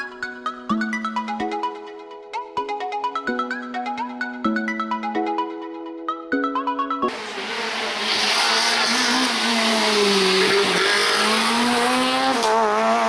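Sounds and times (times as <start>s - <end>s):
rally car engine at high revs: 7.1s - 13.0s
tyre and road noise: 7.1s - 13.0s.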